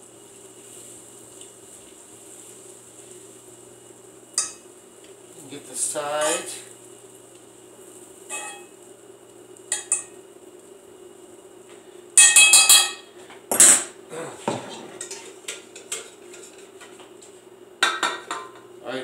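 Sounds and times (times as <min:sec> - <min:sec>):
metal utensil scraping skillet: 0:08.3 - 0:08.7, 0:14.6 - 0:16.8.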